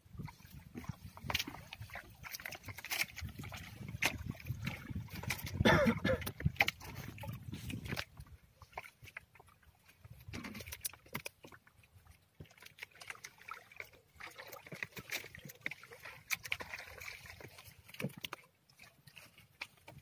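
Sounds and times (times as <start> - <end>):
water dripping and splashing: 0.0 - 20.0
net clicking against hull: 0.8 - 9.5, 10.1 - 11.7.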